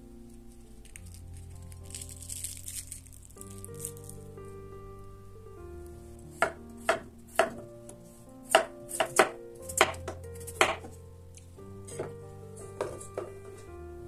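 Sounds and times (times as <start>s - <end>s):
soft background music: 0.0s - 14.0s
knife chopping on cutting board: 6.4s - 7.6s, 8.5s - 10.9s, 11.9s - 13.6s.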